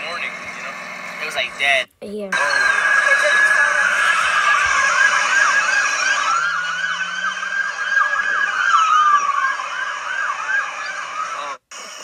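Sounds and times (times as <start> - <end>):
siren wail: 2.4 - 11.6
siren yelp: 2.4 - 11.9.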